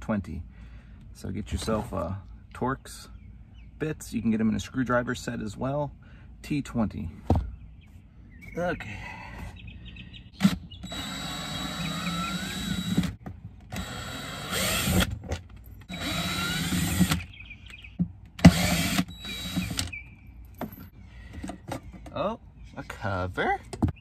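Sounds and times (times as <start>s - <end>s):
cordless drill backing out screws: 18.4s - 20.0s.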